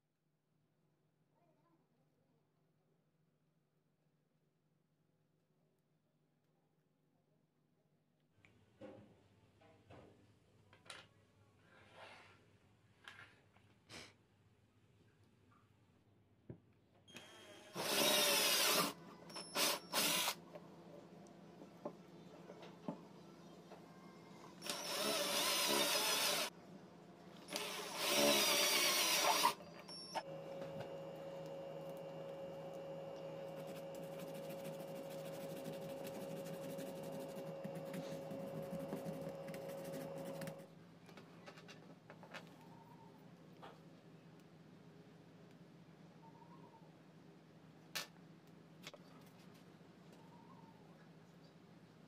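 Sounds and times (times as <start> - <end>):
cordless drill boring plastic: 17.1 - 20.4, 24.6 - 26.5, 27.5 - 34.3.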